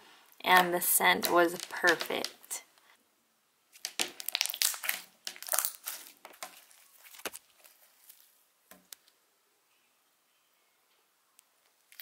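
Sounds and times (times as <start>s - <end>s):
slime squished by hand: 3.8s - 8.3s.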